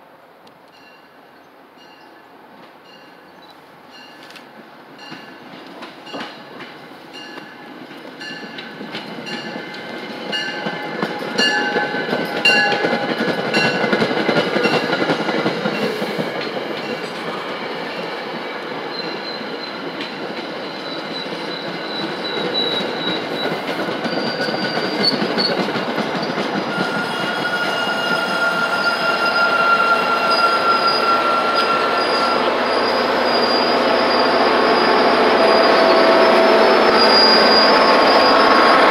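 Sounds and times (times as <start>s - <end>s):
train rolling rumble: 2.3s - 38.9s
train wheels clicking over rail joints: 5.1s - 27.4s
high-pitched wheel squeal: 26.7s - 38.9s.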